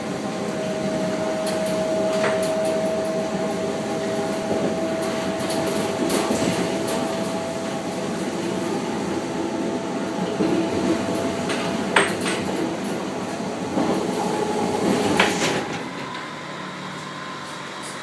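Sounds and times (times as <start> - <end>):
constant high hum: 0.0 - 16.3
train running gear rumble: 0.0 - 18.0.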